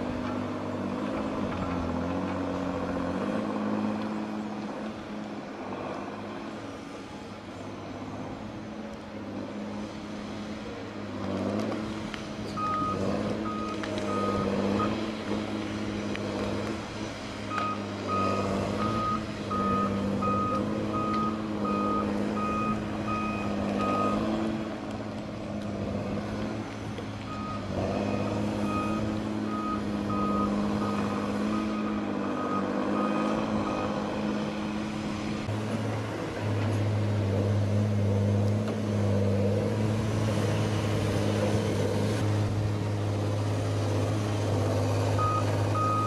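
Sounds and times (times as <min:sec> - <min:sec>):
diesel engine revving: 0:00.0 - 0:46.0
reversing alarm beeping: 0:12.6 - 0:15.0, 0:17.5 - 0:24.3, 0:27.3 - 0:34.0, 0:45.2 - 0:46.0.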